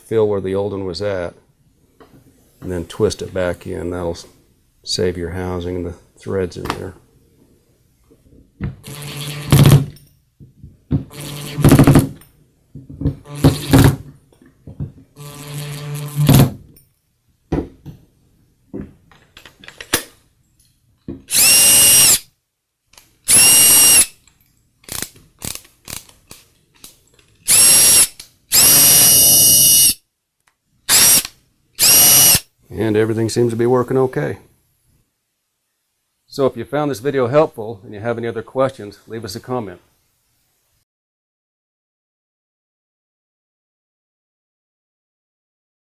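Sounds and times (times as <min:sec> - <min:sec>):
drill motor whine: 0:08.8 - 0:09.6, 0:11.1 - 0:11.7, 0:13.3 - 0:13.9, 0:15.2 - 0:16.3, 0:21.3 - 0:22.2, 0:23.3 - 0:24.1, 0:27.5 - 0:30.0, 0:30.9 - 0:32.4
drill driving screws: 0:08.8 - 0:10.0, 0:11.0 - 0:12.2, 0:13.2 - 0:14.1, 0:15.2 - 0:16.5, 0:21.3 - 0:22.3, 0:23.3 - 0:24.2, 0:27.4 - 0:30.0, 0:30.9 - 0:32.4.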